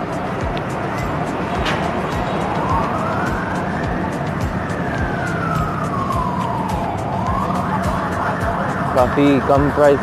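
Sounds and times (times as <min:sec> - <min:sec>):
siren wailing: 0:00.0 - 0:10.0
street traffic hum: 0:00.0 - 0:10.0.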